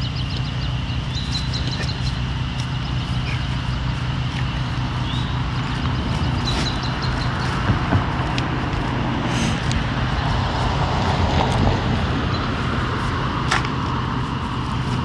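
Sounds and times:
bird chirps: 0.0s - 7.7s, 12.2s - 12.7s
generator humming: 0.0s - 15.0s.

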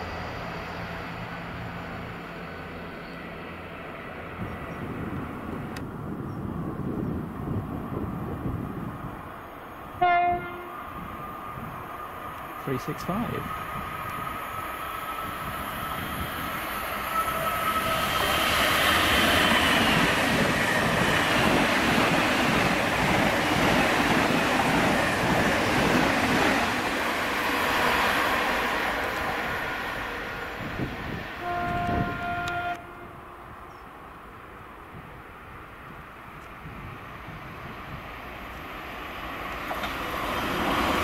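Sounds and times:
train horn: 10.0s - 10.9s, 17.0s - 18.4s, 31.4s - 33.4s
train wheels clattering on rail: 39.3s - 41.0s.

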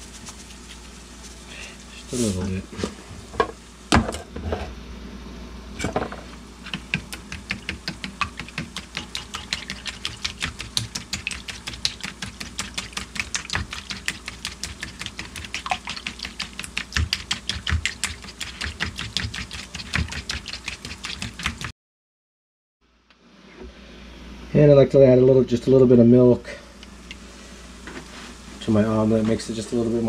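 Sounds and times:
fork beating eggs in a bowl: 6.6s - 21.7s.

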